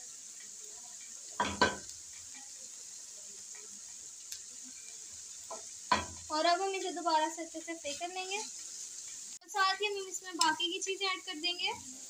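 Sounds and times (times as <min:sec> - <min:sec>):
vegetables sizzling in pan: 0:00.0 - 0:12.0
spatula knocking pan: 0:00.3 - 0:02.5, 0:05.4 - 0:06.9.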